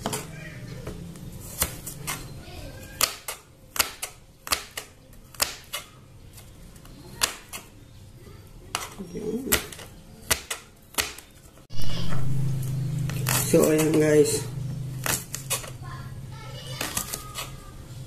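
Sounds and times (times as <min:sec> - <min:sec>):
knife chopping on cutting board: 0:08.7 - 0:11.3.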